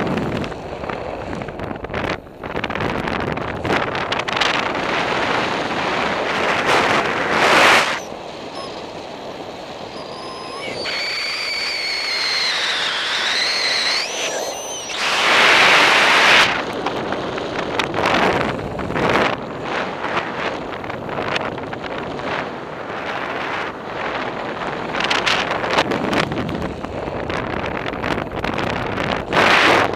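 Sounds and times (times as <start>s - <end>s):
wind rushing over microphone: 0.0s - 29.9s
thin whistling tone: 7.7s - 8.9s, 9.8s - 15.9s.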